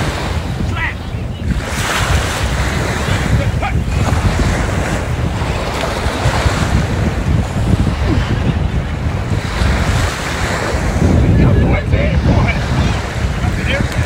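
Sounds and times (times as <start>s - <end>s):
small waves in surf: 0.0s - 14.0s
wind on microphone: 0.0s - 14.0s.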